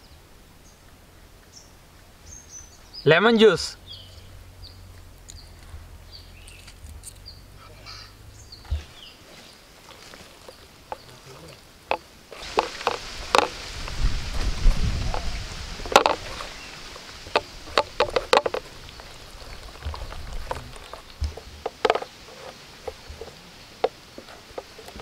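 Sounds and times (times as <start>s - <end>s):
hands squelching wet paste: 8.7s - 14.0s, 15.0s - 21.8s.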